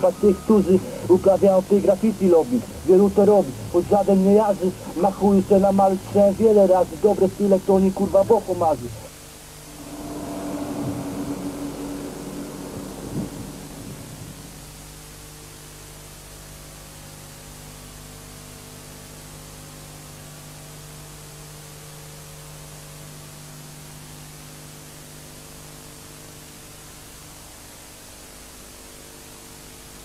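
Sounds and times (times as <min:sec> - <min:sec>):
steady hiss: 0:00.0 - 0:15.8
low electrical hum: 0:00.0 - 0:21.8.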